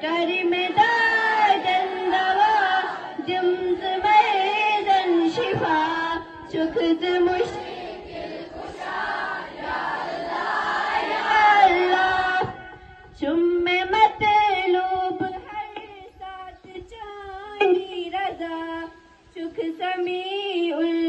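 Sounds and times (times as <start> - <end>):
children singing a prayer: 0.0 - 13.2.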